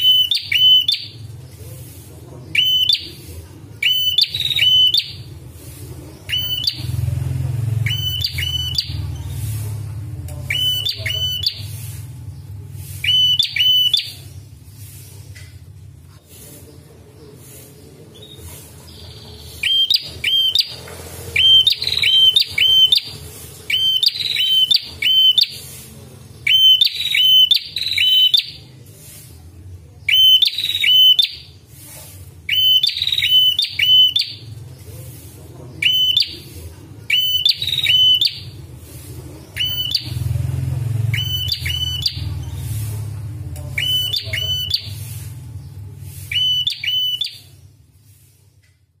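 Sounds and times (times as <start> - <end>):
bird chirping: 0.0 - 29.1, 30.0 - 31.6, 32.5 - 47.8.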